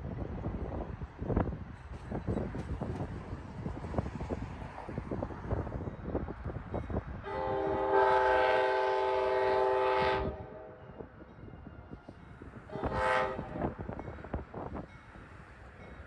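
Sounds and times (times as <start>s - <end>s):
wind buffeting microphone: 0.0s - 16.0s
locomotive air horn blasts: 7.2s - 10.9s, 12.7s - 13.8s.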